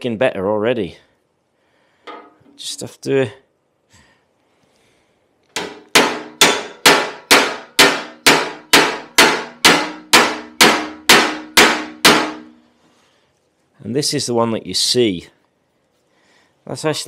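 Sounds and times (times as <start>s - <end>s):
hammer clanging on metal: 5.5s - 12.6s.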